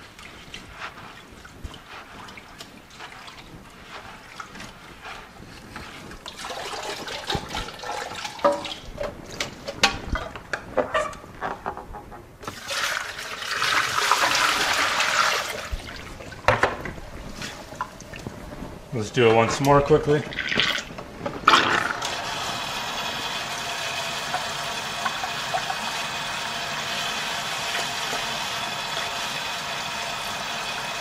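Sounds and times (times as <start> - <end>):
water poured out of bucket: 0.0 - 9.8, 12.4 - 18.4, 20.2 - 31.0
water sloshing in a bucket: 0.0 - 10.0, 12.4 - 22.3.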